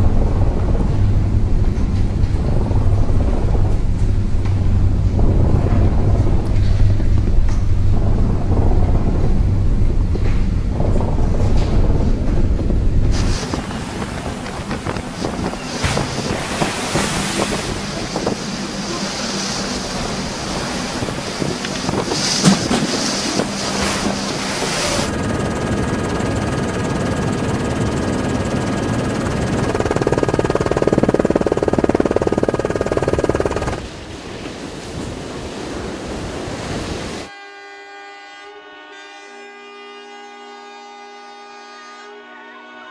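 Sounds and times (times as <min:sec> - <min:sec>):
wind buffeting microphone: 0:00.0 - 0:19.0, 0:19.6 - 0:34.1
faint steady whine: 0:12.9 - 0:33.9
heavy seas crashing on deck: 0:13.1 - 0:25.6
surf breaking against ship: 0:13.2 - 0:25.1.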